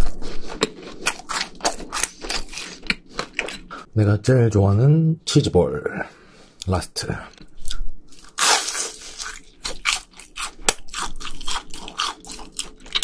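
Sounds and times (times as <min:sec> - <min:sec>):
crunchy food bitten and chewed: 0:00.0 - 0:03.9, 0:07.3 - 0:13.0.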